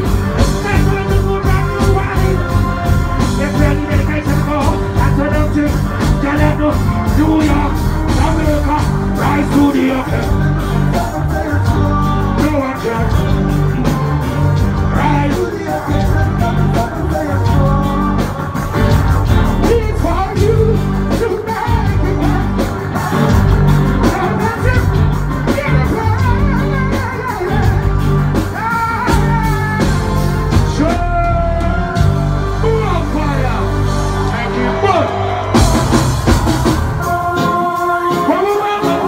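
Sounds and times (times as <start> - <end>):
live reggae band playing: 0.0 - 39.0.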